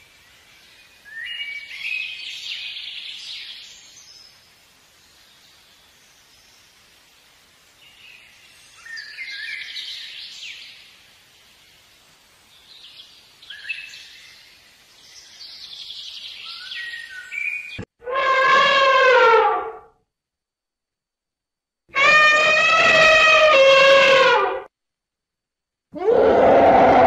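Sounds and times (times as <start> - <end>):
songbirds chirping: 0.0 - 17.8
elephant trumpeting: 18.0 - 19.9, 21.9 - 24.7, 26.0 - 27.0.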